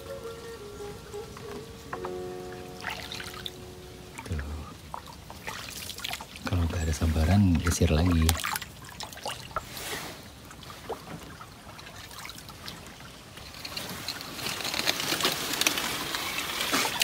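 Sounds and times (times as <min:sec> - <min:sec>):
paddle stroking through water: 0:01.2 - 0:17.0
water trickling and dripping: 0:01.4 - 0:14.8.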